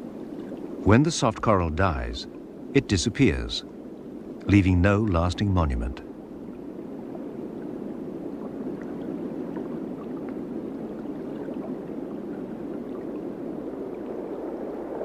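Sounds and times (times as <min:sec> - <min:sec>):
gurgling rushing water: 0:00.0 - 0:15.0.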